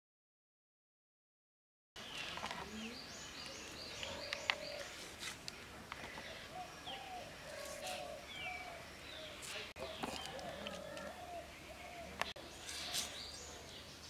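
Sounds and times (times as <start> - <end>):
birds chirping: 2.0 - 14.0
dove-like cooing: 3.9 - 5.0, 6.1 - 13.7.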